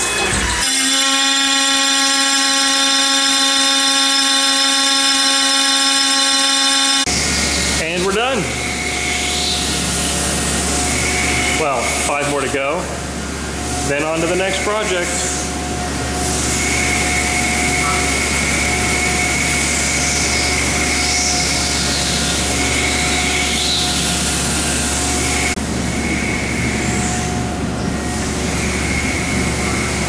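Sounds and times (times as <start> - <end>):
machinery running with high whine: 0.0 - 30.0.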